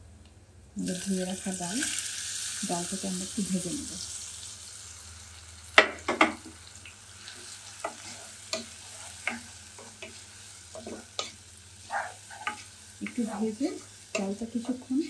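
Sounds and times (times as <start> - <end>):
lentils sizzling in oil: 0.8 - 15.0
wooden spatula scraping pot: 7.8 - 14.8.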